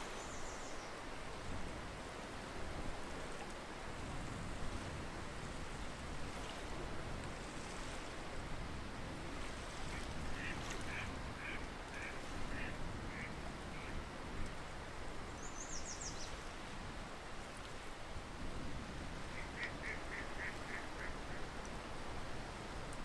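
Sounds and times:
steady background hiss: 0:00.0 - 0:02.9, 0:14.6 - 0:18.3
waterfowl calling: 0:19.4 - 0:21.4.

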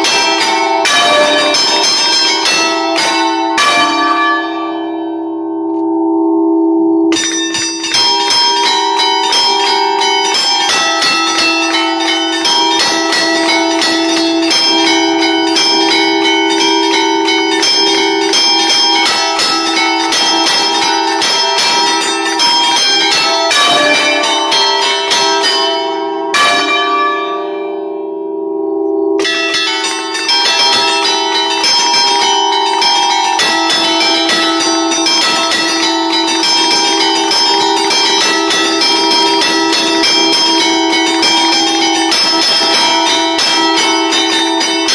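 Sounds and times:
bell clappers striking: 0:00.0 - 0:05.9, 0:07.1 - 0:28.1, 0:29.2 - 0:44.9
church bells ringing fast tune: 0:00.0 - 0:44.9.

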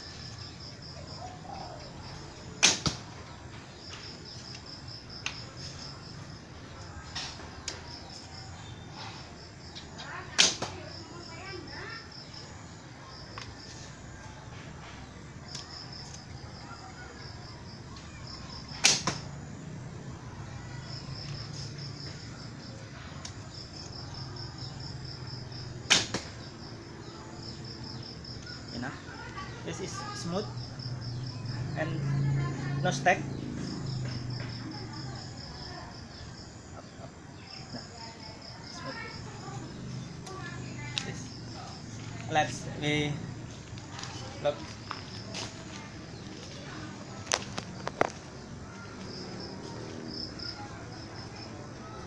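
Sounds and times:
crickets chirping: 0:00.0 - 0:52.0
bowstring snapping: 0:02.6 - 0:03.0, 0:10.4 - 0:10.8, 0:18.8 - 0:19.2, 0:25.9 - 0:26.4
arrow striking target: 0:02.6 - 0:03.1, 0:10.4 - 0:10.8, 0:18.8 - 0:19.3, 0:25.9 - 0:26.4.

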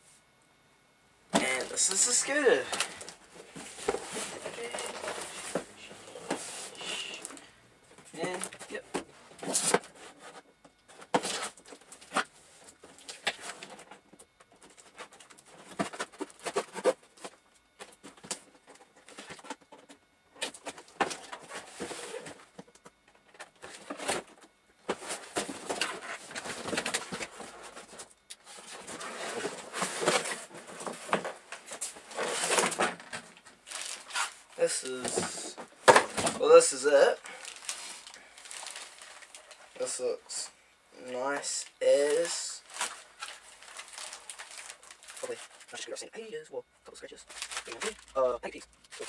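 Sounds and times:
packaging rustling and tearing: 0:01.5 - 0:07.4, 0:23.3 - 0:40.2, 0:41.8 - 0:45.8, 0:47.2 - 0:49.0.

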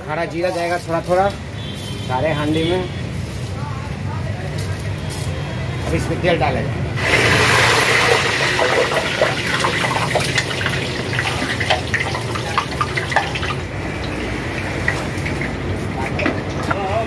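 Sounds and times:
hot oil pouring and dripping: 0:07.0 - 0:16.7.

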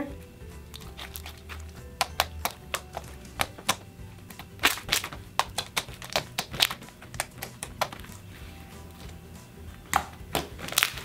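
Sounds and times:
slime clicking and popping: 0:00.7 - 0:08.2, 0:09.9 - 0:11.0.

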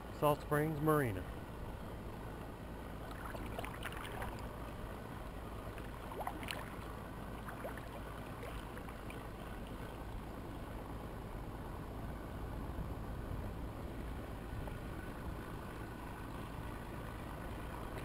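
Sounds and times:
steady low rumble: 0:00.0 - 0:18.0
drips and small splashes: 0:03.0 - 0:04.6, 0:05.7 - 0:10.3
paddle strokes in water: 0:03.0 - 0:04.6, 0:05.6 - 0:10.7.

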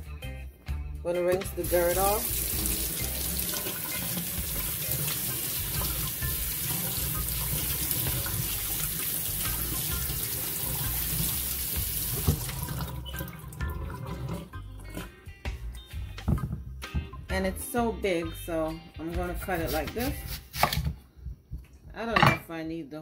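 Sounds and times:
tap water running into sink: 0:01.6 - 0:15.1.

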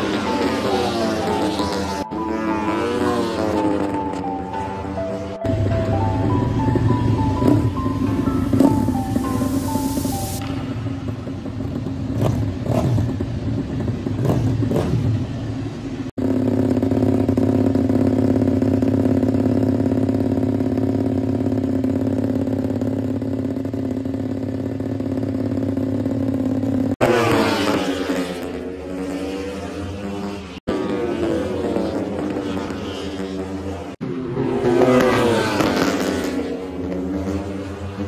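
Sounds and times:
racing motorcycles passing by: 0:00.0 - 0:38.0
motorcycle engine running steadily: 0:05.4 - 0:27.8.

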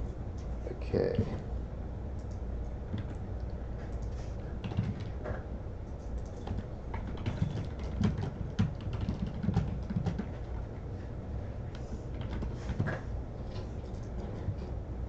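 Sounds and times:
computer keyboard typing: 0:02.2 - 0:03.2, 0:03.9 - 0:05.2, 0:06.2 - 0:10.7, 0:12.1 - 0:13.0.

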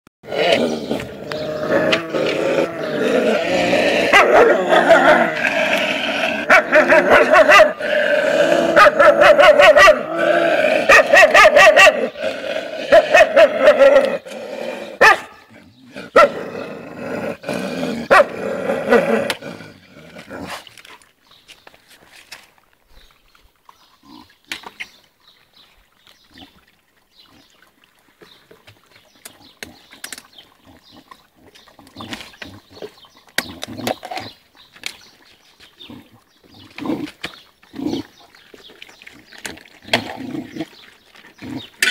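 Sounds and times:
puppies grunting and snuffling: 0:00.3 - 0:09.2.

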